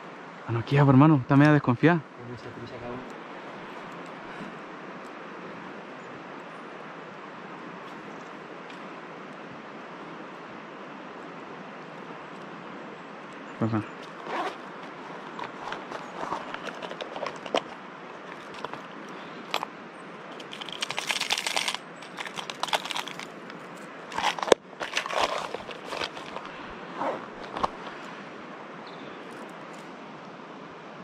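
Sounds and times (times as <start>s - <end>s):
rustling and crinkling handling: 14.0s - 19.6s, 20.3s - 28.2s.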